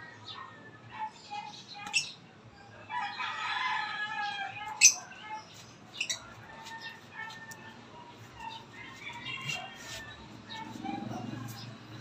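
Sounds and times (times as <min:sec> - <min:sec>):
lovebirds shrill chirps: 0:04.8 - 0:07.0.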